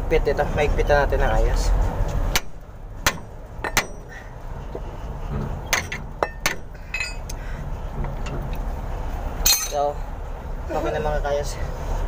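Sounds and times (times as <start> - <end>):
sharp metallic clanks on wrench: 3.1 - 4.2, 5.7 - 7.4, 9.4 - 9.8.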